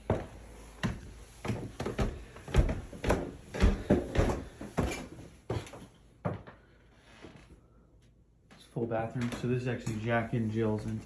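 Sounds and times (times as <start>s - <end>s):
light footsteps on floor: 0.0s - 6.6s
footsteps on wooden stairs: 0.0s - 7.4s.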